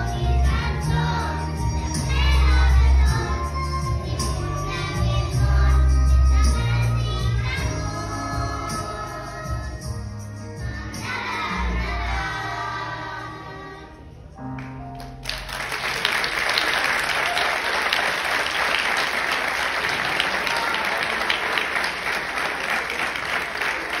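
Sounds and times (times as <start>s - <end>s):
children's choir singing: 0.0s - 14.2s
audience applause: 15.0s - 24.0s.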